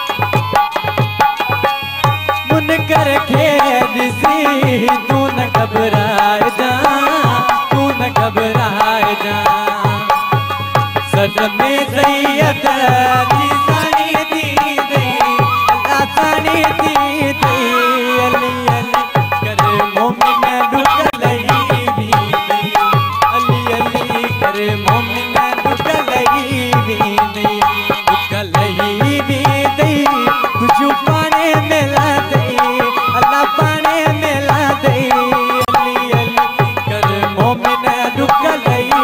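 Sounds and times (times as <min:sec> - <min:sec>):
barrel drum rhythm: 0:00.0 - 0:39.0
sliding instrumental melody: 0:09.2 - 0:39.0.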